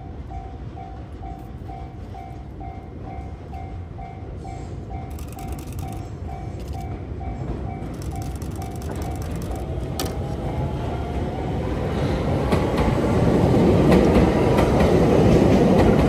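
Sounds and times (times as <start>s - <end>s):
level-crossing warning bell: 0.0s - 9.8s
electric train rumble: 0.0s - 16.0s
rapid fine clicking: 5.1s - 6.8s, 7.9s - 10.4s.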